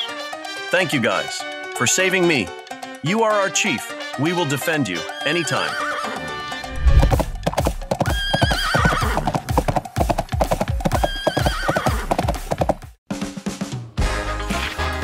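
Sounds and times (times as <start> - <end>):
horse whinnying: 5.1 - 6.8, 8.0 - 9.7, 10.6 - 12.6
galloping hoofbeats: 6.9 - 13.0.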